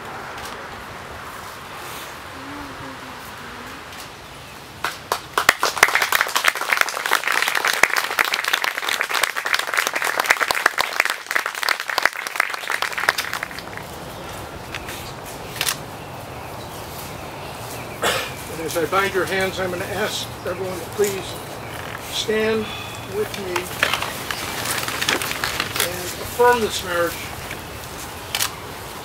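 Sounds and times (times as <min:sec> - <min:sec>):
people applauding: 0:04.8 - 0:14.0, 0:23.1 - 0:27.1.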